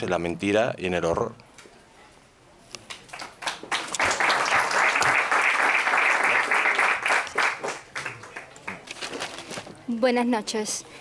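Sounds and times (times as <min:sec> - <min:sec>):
audience applauding: 0:02.9 - 0:08.8.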